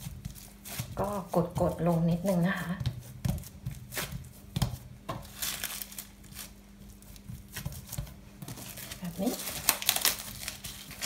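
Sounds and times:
cling film crinkling: 0:05.3 - 0:06.6, 0:08.5 - 0:11.0.

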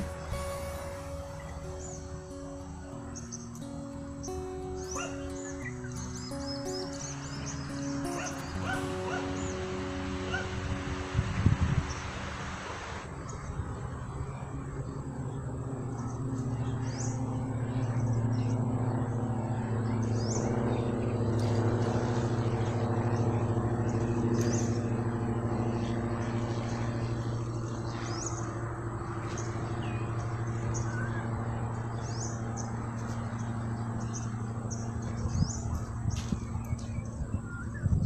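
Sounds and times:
bird chirping: 0:00.0 - 0:12.2
low engine hum: 0:00.0 - 0:38.0.

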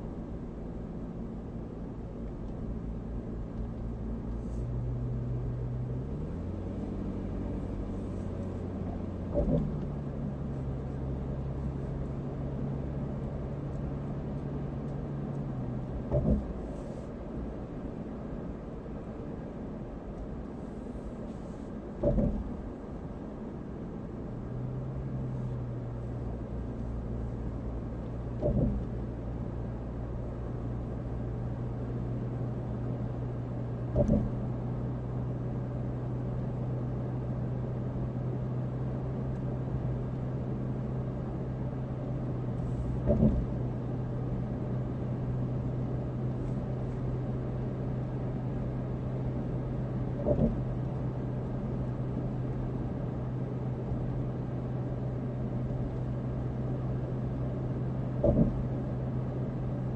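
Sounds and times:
car road noise inside cabin: 0:00.0 - 0:59.9
steady low hum: 0:00.0 - 0:59.9
short thumps: 0:15.9 - 0:16.7, 0:22.0 - 0:22.6, 0:28.4 - 0:28.9, 0:33.9 - 0:34.4, 0:42.7 - 0:43.6, 0:50.2 - 0:50.8, 0:58.2 - 0:58.7.

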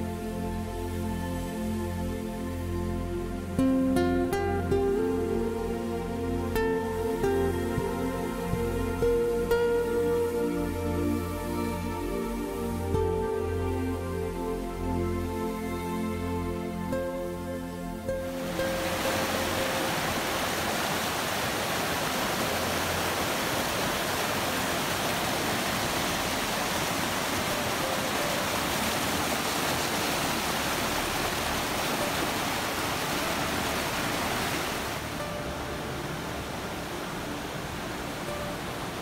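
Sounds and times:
creek rushing over rocks: 0:18.2 - 0:39.0.

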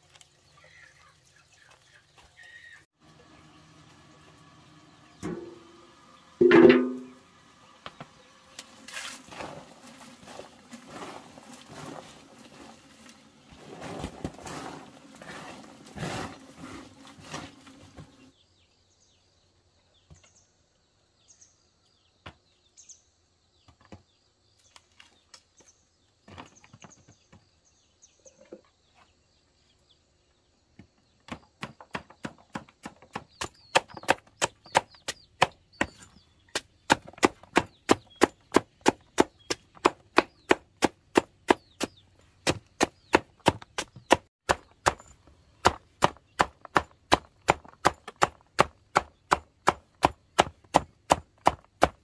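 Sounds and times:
machete chopping on wooden block: 0:31.3 - 0:52.0.

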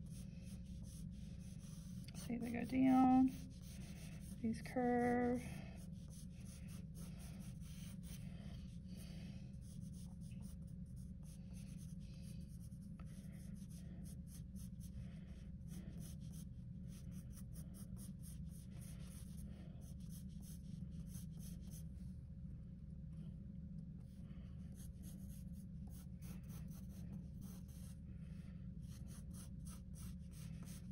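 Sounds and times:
pencil scratching on paper: 0:00.0 - 0:08.2, 0:09.6 - 0:21.9, 0:24.6 - 0:28.0, 0:28.8 - 0:30.9
steady low hum: 0:00.0 - 0:30.9.

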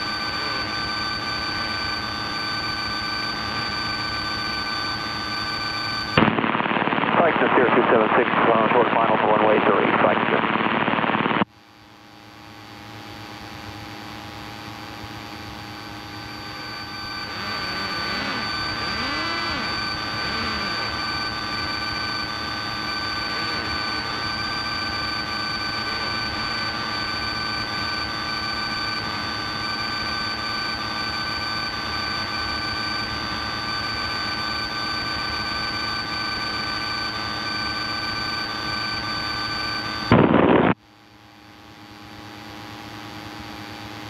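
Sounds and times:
airplane engine drone: 0:14.4 - 0:29.9
high whining tones: 0:14.9 - 0:27.7.

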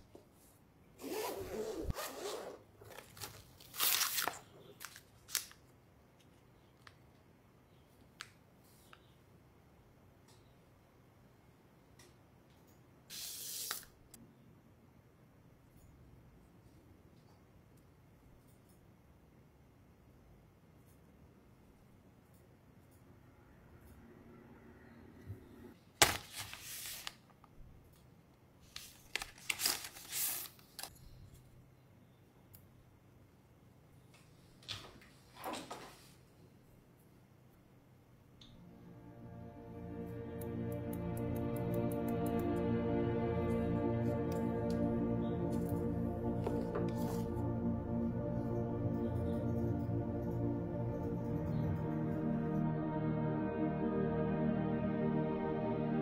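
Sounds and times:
zipper pulled open: 0:01.0 - 0:03.0
plastic bags crinkling: 0:02.9 - 0:05.6.

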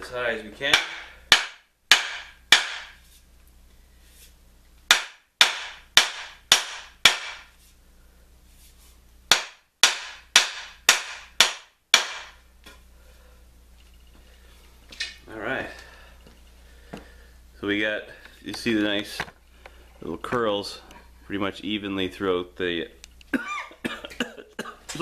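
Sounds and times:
wooden mallet knocking on wood: 0:00.7 - 0:02.9, 0:04.9 - 0:07.4.

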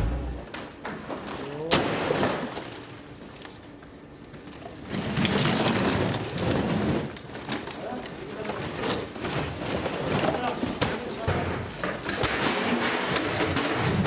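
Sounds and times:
plastic sacks rustling and crackling: 0:04.7 - 0:11.3.

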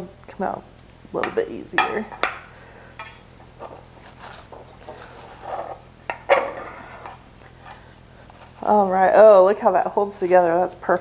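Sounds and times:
metal utensil scraping a baking pan: 0:03.0 - 0:07.8.

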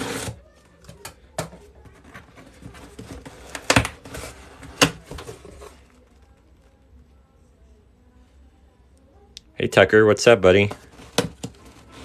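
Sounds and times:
cardboard scraping: 0:00.0 - 0:00.4, 0:01.9 - 0:06.0, 0:10.7 - 0:12.0.

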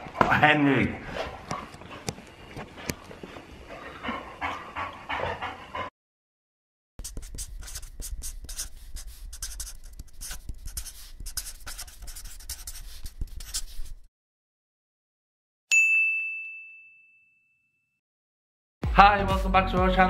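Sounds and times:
dog noise: 0:01.1 - 0:05.9
pen scratching on paper: 0:07.0 - 0:14.1.

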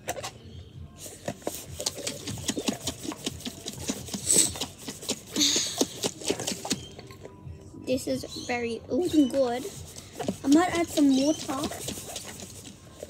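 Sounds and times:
liquid sloshing in shaken glass jar: 0:09.7 - 0:13.0.

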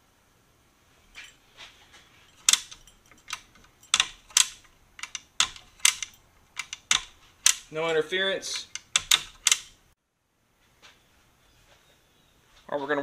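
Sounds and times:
trigger clicks: 0:02.4 - 0:07.8, 0:08.5 - 0:09.8.

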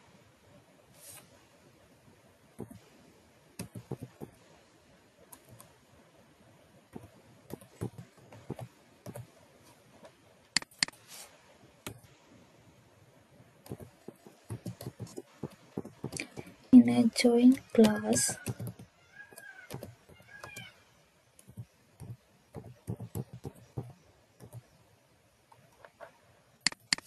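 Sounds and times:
typing on a keyboard: 0:03.6 - 0:04.3, 0:07.0 - 0:09.3, 0:13.7 - 0:16.6, 0:17.8 - 0:20.7, 0:21.4 - 0:24.6
sharp keyboard clicks: 0:03.6 - 0:04.4, 0:07.0 - 0:09.3, 0:10.6 - 0:11.0, 0:13.6 - 0:16.6, 0:17.5 - 0:20.7, 0:21.4 - 0:24.6, 0:26.6 - 0:27.0.

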